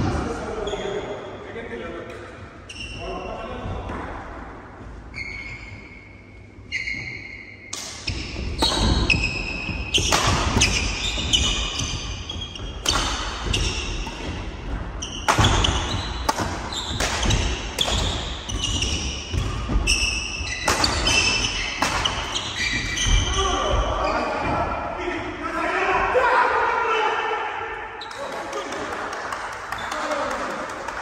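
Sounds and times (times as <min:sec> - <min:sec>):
shoes squeaking on wooden floor: 0:04.9 - 0:24.6
racket striking shuttlecock: 0:09.9 - 0:11.4, 0:12.8 - 0:18.2, 0:20.6 - 0:22.4.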